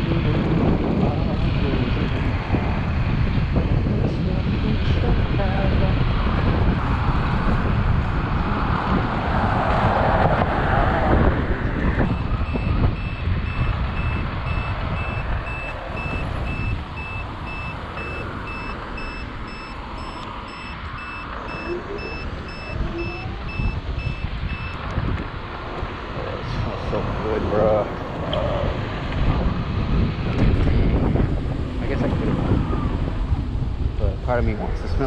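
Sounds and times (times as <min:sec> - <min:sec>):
wind rush on microphone: 0:00.0 - 0:35.0
high-pitched turn-signal beeping: 0:12.1 - 0:24.8.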